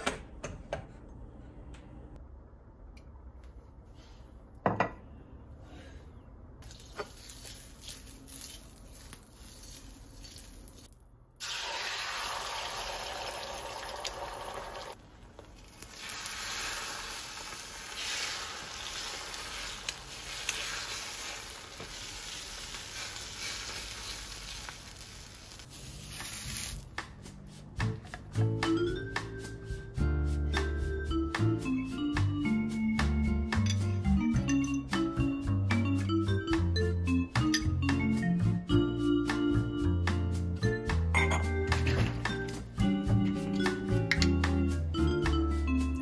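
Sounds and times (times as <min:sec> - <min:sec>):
eggs sizzling in hot oil: 0:06.6 - 0:26.8
utensil stirring in pan: 0:15.5 - 0:26.8.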